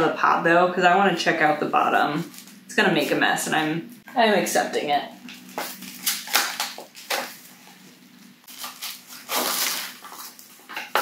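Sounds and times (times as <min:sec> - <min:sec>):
plastic plant pot crackling: 0:08.5 - 0:11.0.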